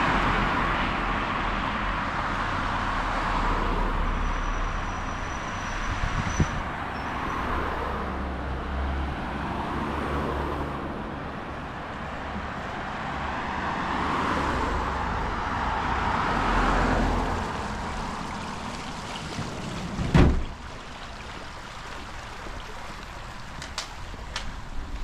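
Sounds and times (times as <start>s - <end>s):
car passing by: 0.0s - 23.4s
loud thump: 20.0s - 20.6s.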